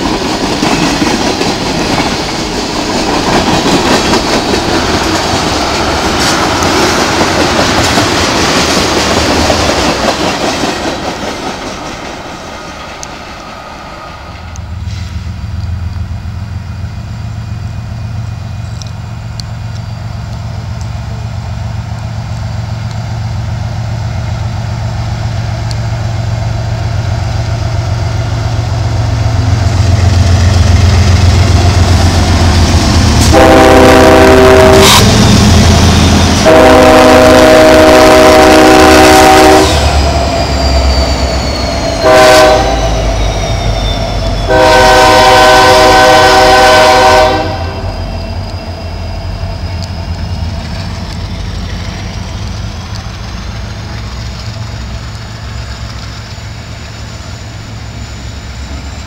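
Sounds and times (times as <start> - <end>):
diesel locomotive engine rumble: 0.0 - 59.0
train horn blasts: 33.2 - 40.0, 42.0 - 43.1, 44.4 - 48.0.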